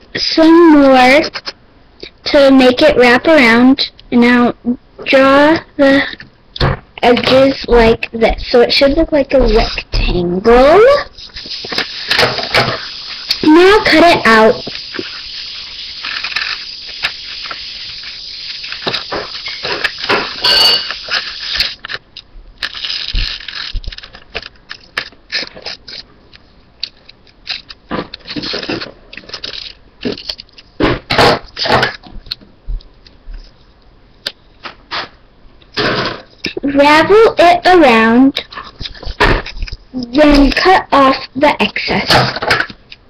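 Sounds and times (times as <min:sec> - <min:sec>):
paper rustling: 0:11.2 - 0:22.0, 0:22.6 - 0:26.1, 0:27.4 - 0:30.7.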